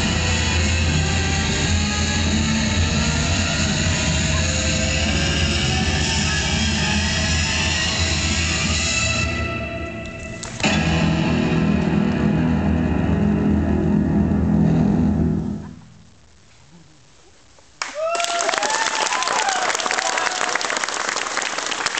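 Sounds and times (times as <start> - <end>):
audience applause: 17.8 - 21.9
audience whoops: 17.8 - 21.9.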